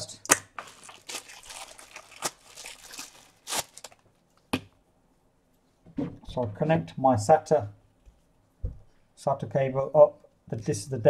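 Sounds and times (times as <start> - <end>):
plastic bag crinkling: 0.6 - 4.1.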